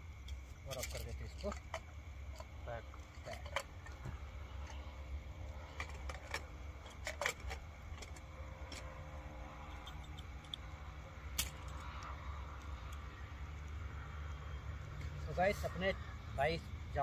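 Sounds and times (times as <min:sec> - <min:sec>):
metal utensils clinking on pot: 0:00.7 - 0:01.8, 0:02.4 - 0:04.0.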